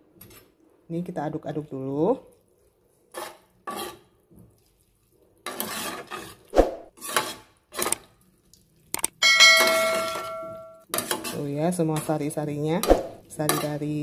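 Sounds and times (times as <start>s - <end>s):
metal spoon scraping pot: 3.1s - 4.1s, 5.4s - 8.0s, 9.1s - 14.0s.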